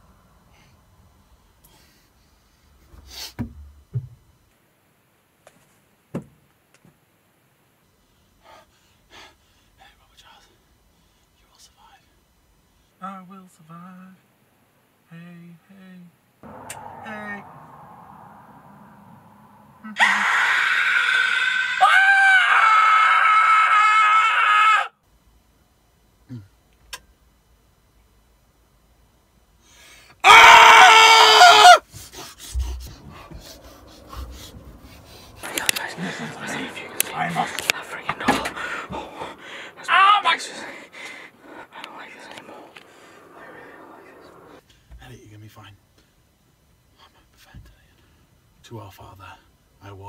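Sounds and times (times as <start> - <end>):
dull knocks on wood: 3.4 - 4.2
high-pitched human scream: 19.8 - 25.0, 30.2 - 31.8, 39.8 - 40.7
faint clicks: 35.4 - 35.9.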